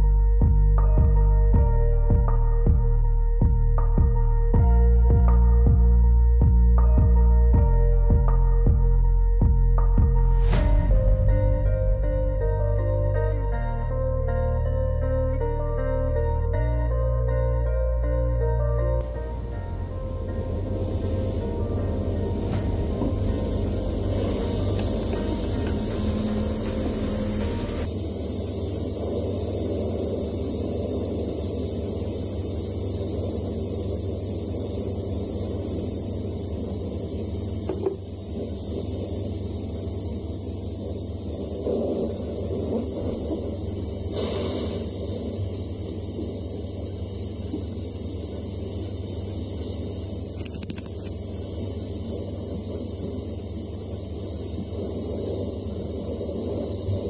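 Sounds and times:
steady low hum: 0.0 - 57.0
gas torch flame hissing: 19.0 - 57.0.

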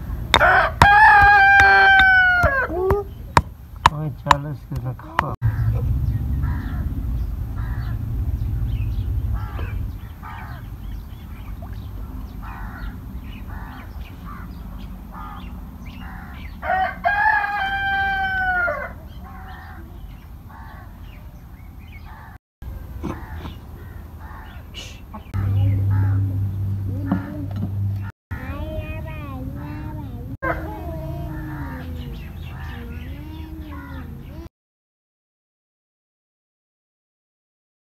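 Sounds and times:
rooster crowing: 0.3 - 3.1, 16.0 - 19.7, 30.4 - 32.1
low rumble: 5.4 - 16.2, 25.4 - 32.0
short bird calls: 5.4 - 16.8, 17.5 - 25.3.

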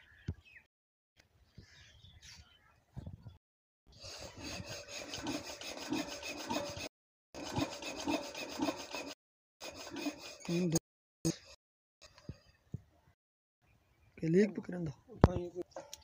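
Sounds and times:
rhythmic scraping and squeaking: 4.0 - 10.8.

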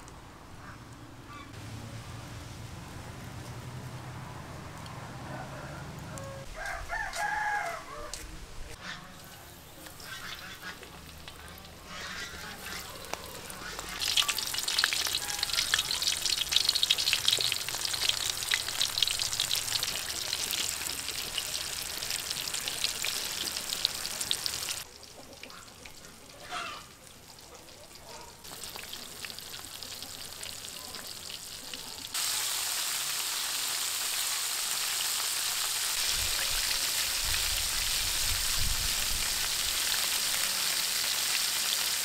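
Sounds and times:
rooster crowing: 4.8 - 8.3, 15.0 - 16.1
food deep-frying in oil: 9.2 - 42.0.

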